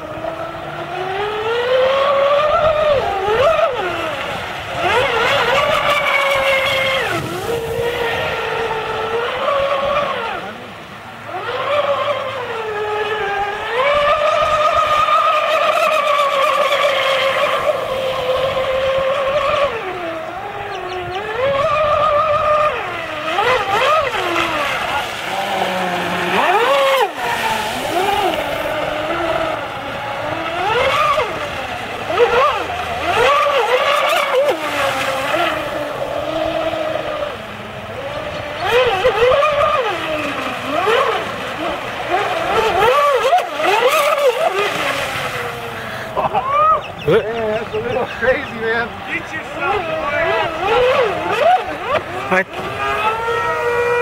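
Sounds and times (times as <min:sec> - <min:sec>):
toy speedboat motor whining: 0:00.0 - 0:54.0.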